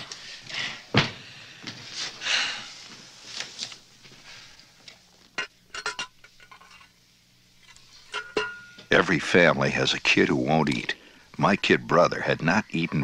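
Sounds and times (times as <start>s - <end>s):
dishes and cutlery clinking: 5.4s - 7.0s, 7.6s - 8.9s.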